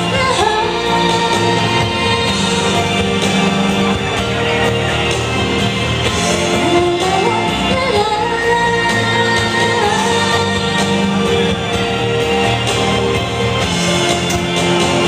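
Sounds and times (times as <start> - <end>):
woman singing into microphone: 0.0 - 3.6, 6.6 - 11.8
instrumental backing track: 0.0 - 15.0.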